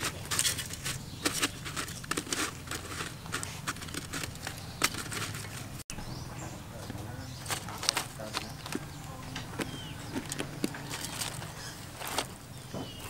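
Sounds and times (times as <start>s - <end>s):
stalks rustling on coarse salt: 0.0s - 5.8s, 7.4s - 8.9s, 9.5s - 12.4s.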